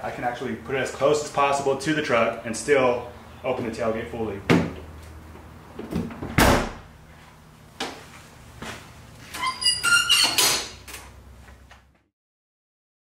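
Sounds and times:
metallic clanks with squeak: 0:09.3 - 0:10.9.

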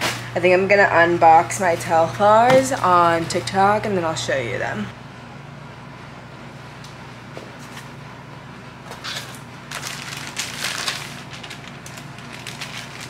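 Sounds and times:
plastic packaging rustling: 0:08.9 - 0:13.0.

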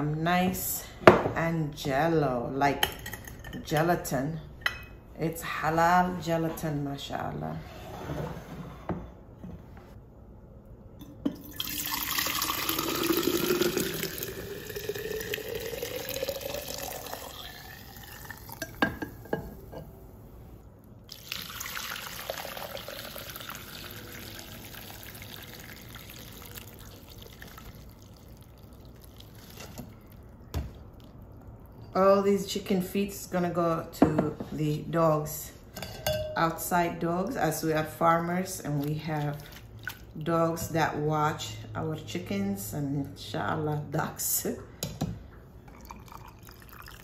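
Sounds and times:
liquid pouring into glass jar: 0:11.3 - 0:18.9, 0:21.1 - 0:30.4, 0:45.7 - 0:47.0.

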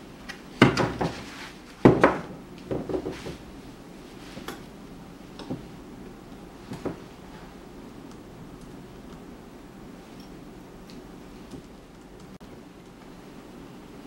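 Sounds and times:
acrylic panels knocking and clacking: 0:00.6 - 0:03.5.

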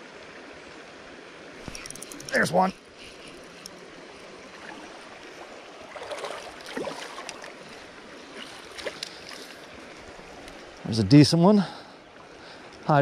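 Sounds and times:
creek water rushing: 0:00.0 - 0:13.0
small water splashes: 0:03.4 - 0:10.8.

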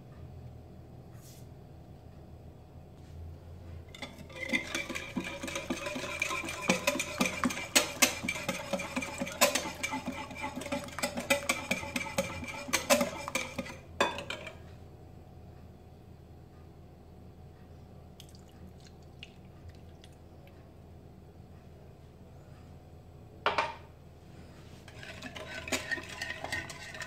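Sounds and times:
whisk clicking against glass bowl: 0:04.0 - 0:13.8, 0:25.0 - 0:27.0.

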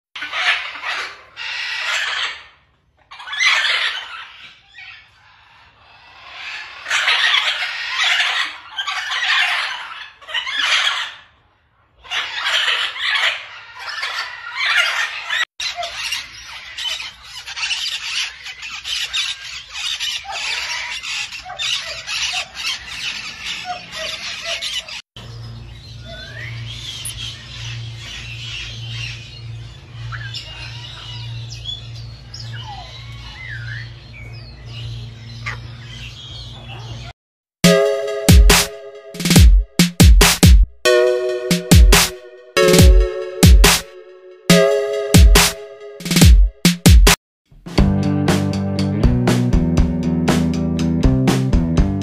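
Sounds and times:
parrots squawking: 0:00.2 - 0:25.0.

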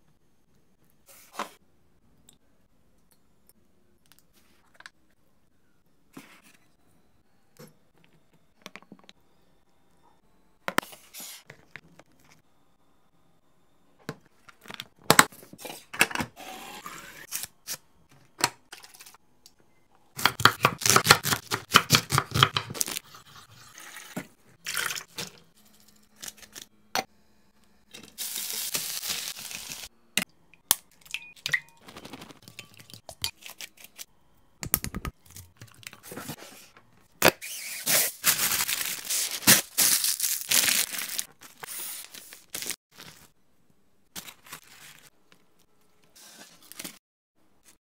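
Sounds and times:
packaging crinkling and tearing: 0:28.2 - 0:29.9, 0:37.8 - 0:43.3, 0:44.2 - 0:45.1.

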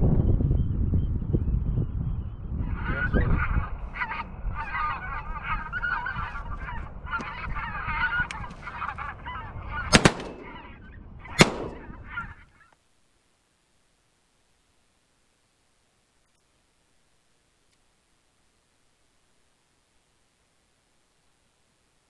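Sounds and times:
wind rumble: 0:00.0 - 0:12.5
geese honking: 0:02.6 - 0:12.7
shotgun shots: 0:09.9 - 0:10.8, 0:11.4 - 0:12.2.

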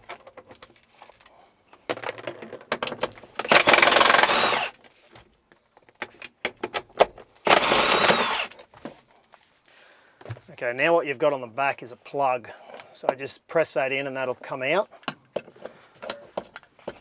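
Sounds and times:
cordless drill motor: 0:03.4 - 0:04.8, 0:07.4 - 0:08.6.

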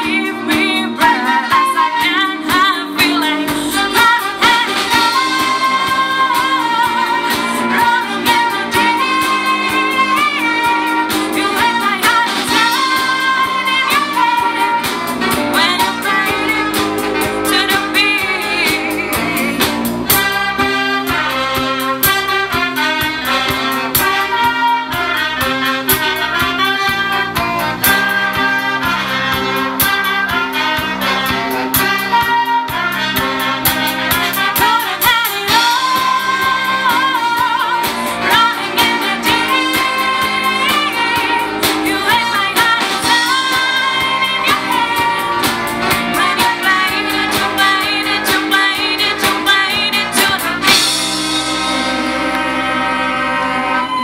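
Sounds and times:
young woman singing: 0:00.0 - 0:22.8, 0:34.2 - 0:51.3
orchestra playing: 0:00.0 - 0:54.0.

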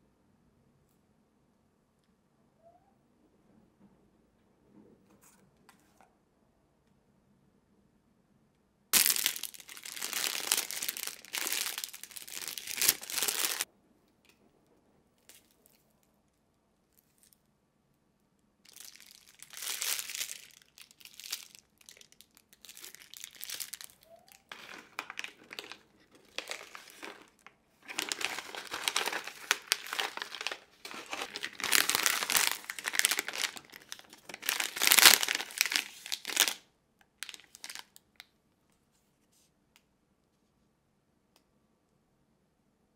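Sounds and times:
plastic bags crinkling: 0:09.0 - 0:13.7, 0:18.7 - 0:36.6, 0:37.2 - 0:38.0.

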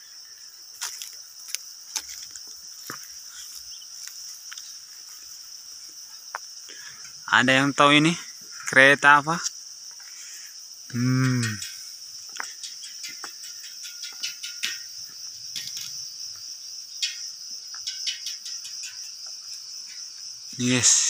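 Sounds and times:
crickets chirring: 0:00.0 - 0:21.0
man humming: 0:10.9 - 0:11.6, 0:20.6 - 0:21.0.

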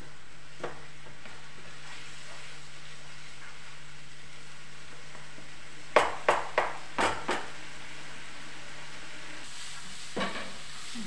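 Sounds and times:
spatula knocking against a pan: 0:05.9 - 0:07.5.

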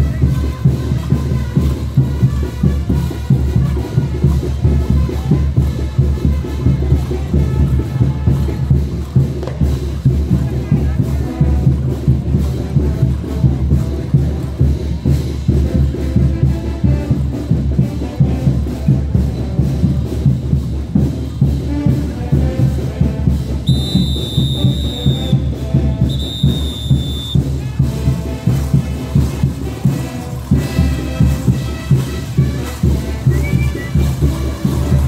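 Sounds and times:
brass band playing: 0:00.0 - 0:35.0
pounding drum beat: 0:00.0 - 0:35.0
long whistle blasts: 0:23.6 - 0:25.4, 0:26.0 - 0:27.5.

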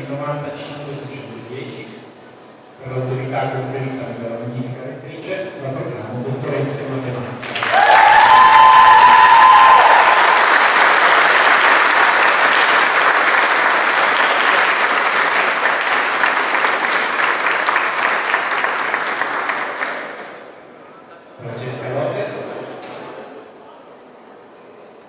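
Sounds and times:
audience applauding: 0:07.4 - 0:20.4.

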